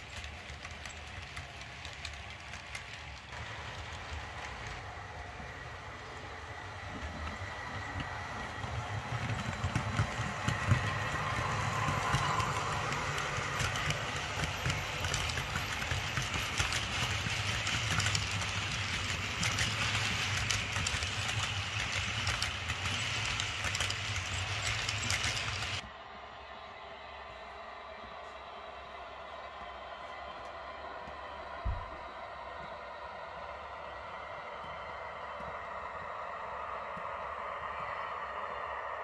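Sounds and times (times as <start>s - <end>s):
model train rumbling: 0.0s - 25.8s
wheels clicking over rail joints: 0.0s - 25.8s.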